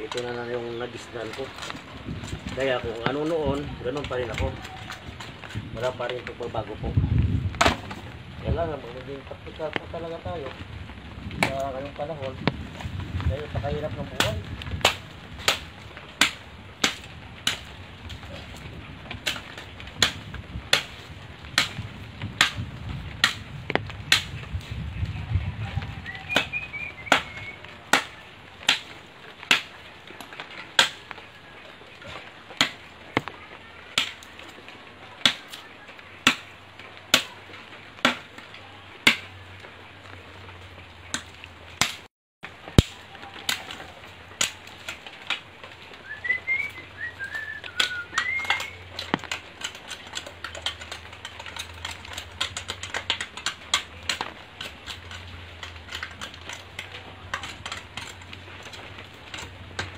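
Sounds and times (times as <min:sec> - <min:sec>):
machete chopping branches: 0:07.5 - 0:08.2, 0:11.4 - 0:24.6, 0:26.1 - 0:31.3, 0:32.0 - 0:39.6, 0:41.0 - 0:59.9
bird chirping: 0:26.0 - 0:27.7.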